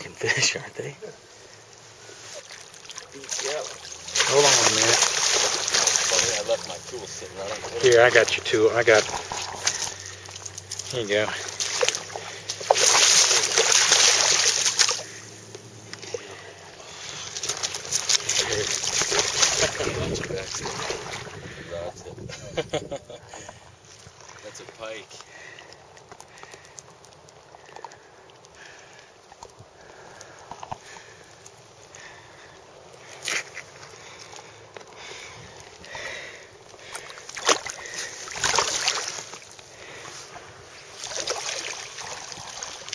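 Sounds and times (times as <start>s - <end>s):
water splashing and sloshing: 0.0s - 42.9s
water trickling and lapping: 0.0s - 42.9s.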